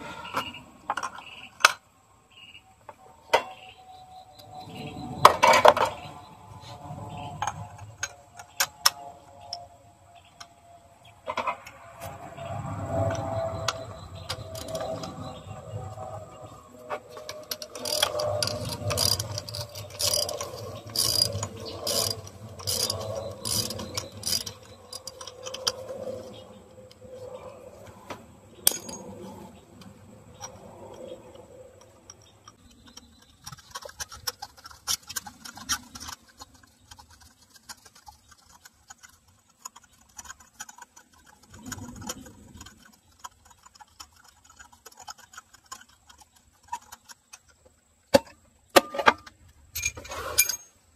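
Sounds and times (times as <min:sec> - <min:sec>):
tool handling: 0:16.9 - 0:26.1, 0:28.6 - 0:29.2
socket ratchet clicking: 0:17.3 - 0:25.9.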